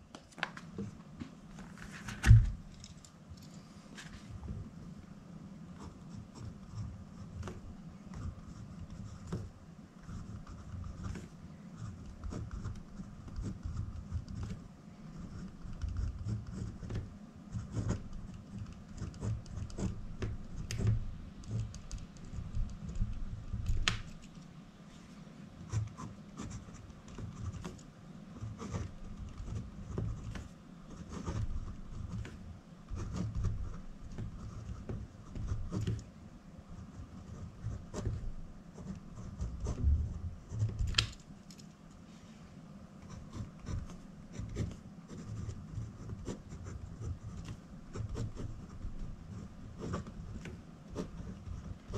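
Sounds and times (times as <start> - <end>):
pen scratching on paper: 5.7 - 24.2, 28.4 - 36.0, 36.7 - 40.9, 43.0 - 51.9.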